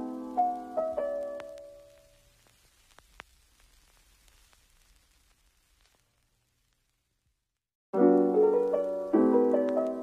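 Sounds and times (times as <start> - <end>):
soft piano music: 0.0 - 2.1, 8.0 - 10.0.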